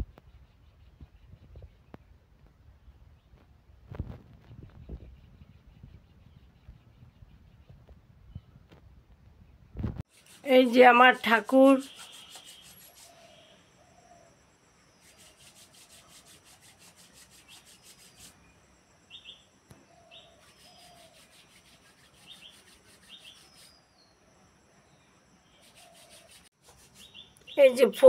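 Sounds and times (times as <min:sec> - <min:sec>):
faint birds chirping: 0:00.0 - 0:28.0.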